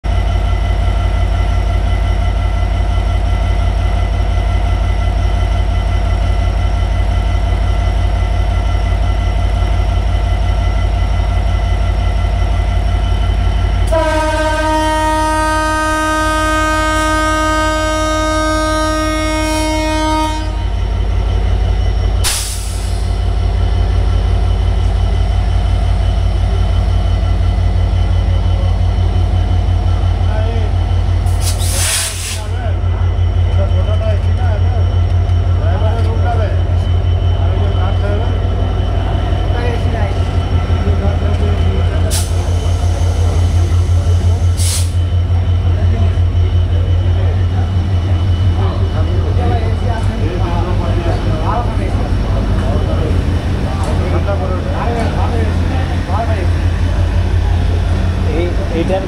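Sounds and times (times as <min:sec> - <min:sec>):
locomotive engine drone: 0:00.0 - 0:59.0
multi-tone train horn: 0:13.8 - 0:20.9.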